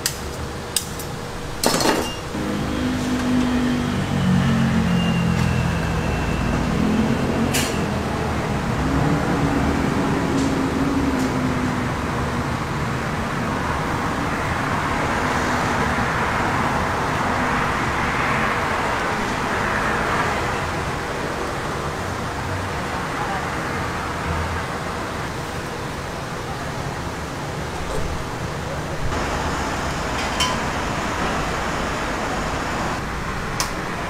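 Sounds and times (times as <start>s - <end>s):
griddle kitchen hum and hiss: 28.0s - 33.0s.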